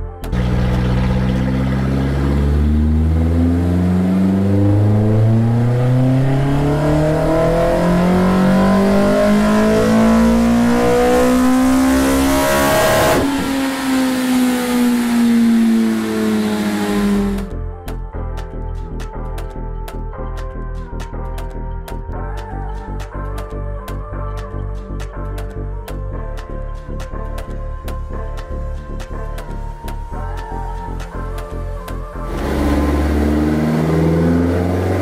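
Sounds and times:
car engine revving on dyno: 0.3 - 17.5, 32.3 - 35.0.

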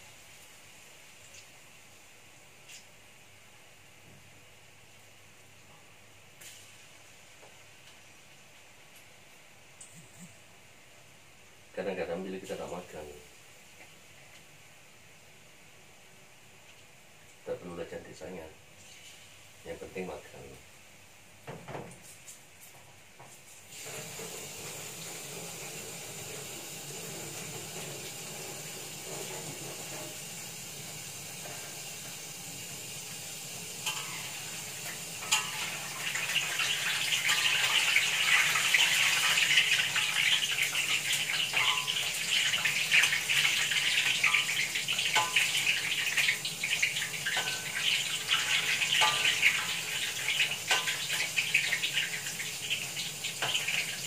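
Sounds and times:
batter sizzling in hot oil: 0.0 - 3.2, 6.4 - 9.0, 17.4 - 20.5, 23.5 - 54.0.

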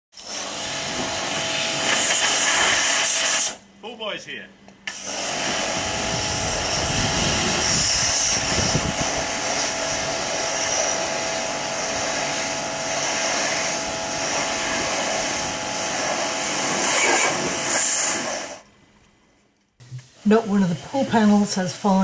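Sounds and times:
pressure washer motor hum: 0.2 - 3.6, 4.8 - 18.6
water spray hissing on plastic: 0.2 - 3.6, 4.9 - 18.6.

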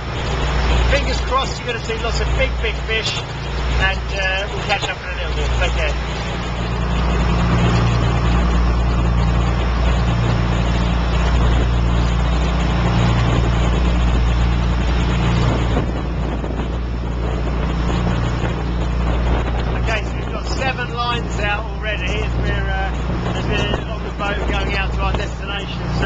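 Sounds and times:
boat engine droning: 0.0 - 26.0
constant rushing noise: 0.0 - 26.0.

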